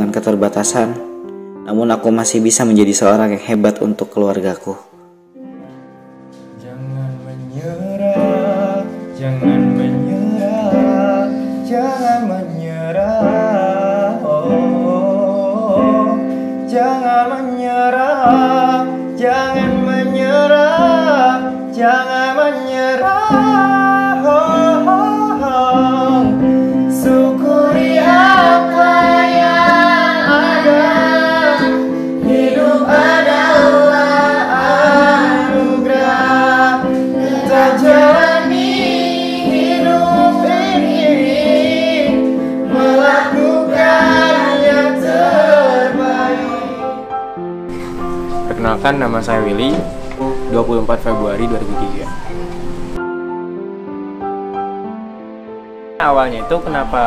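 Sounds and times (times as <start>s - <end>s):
person singing with vibrato: 6.5s - 47.1s
sustained instrumental chords: 18.2s - 57.0s.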